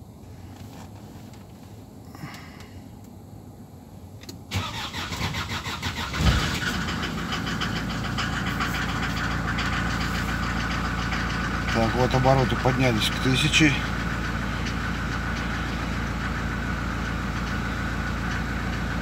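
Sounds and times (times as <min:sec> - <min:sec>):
diesel engine cranking: 0:04.5 - 0:19.0
diesel engine idling: 0:04.5 - 0:19.0.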